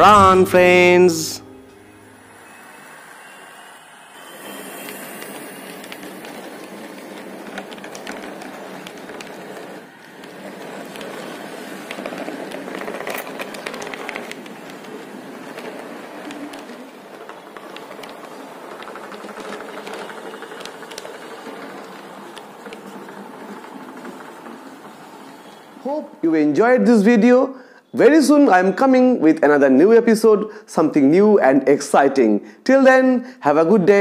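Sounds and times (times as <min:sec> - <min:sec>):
model train wheels rattling on track: 0:02.4 - 0:26.0.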